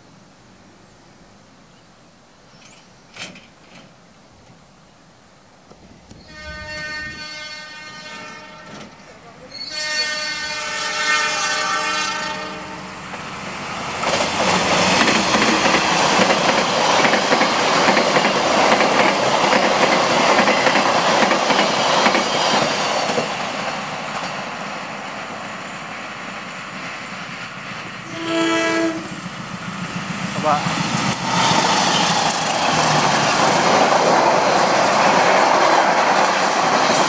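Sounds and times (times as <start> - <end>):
locomotive horn: 6.2 - 9.0, 9.6 - 13.0, 28.0 - 29.2
train wheels clattering: 14.0 - 24.5.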